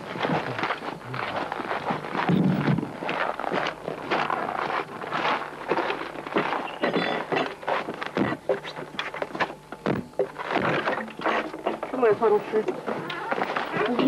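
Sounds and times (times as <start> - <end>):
footsteps on packed snow: 0.0 - 8.8.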